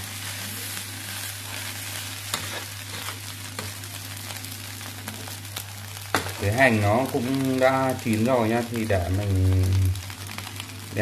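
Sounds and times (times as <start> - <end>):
rice sizzling in a frying pan: 0.0 - 11.0
metal spatula scraping pan: 2.3 - 3.2.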